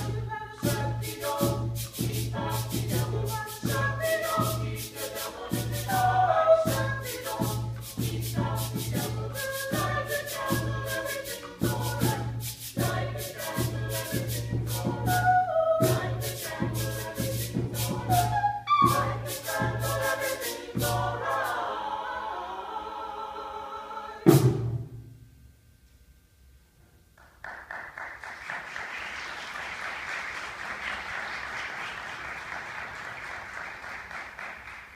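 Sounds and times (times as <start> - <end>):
shaker percussion: 0.0 - 21.8
vocal ensemble singing a cappella: 0.0 - 24.9
audience applauding: 27.2 - 34.9.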